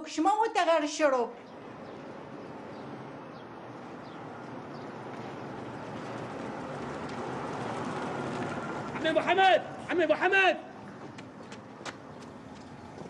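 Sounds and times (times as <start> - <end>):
car engine and tyre noise: 1.4 - 13.0.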